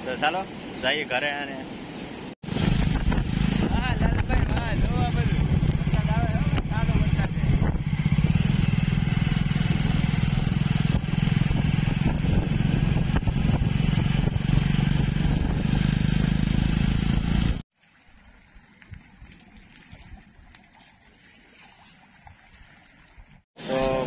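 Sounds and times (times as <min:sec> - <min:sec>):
motorcycle engine running: 0:02.4 - 0:17.6.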